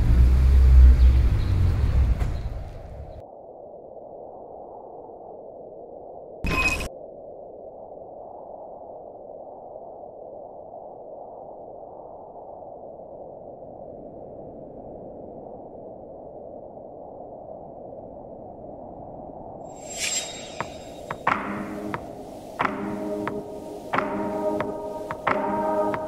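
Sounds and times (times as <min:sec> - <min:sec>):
bright chime-like hit: 0:19.8 - 0:21.1.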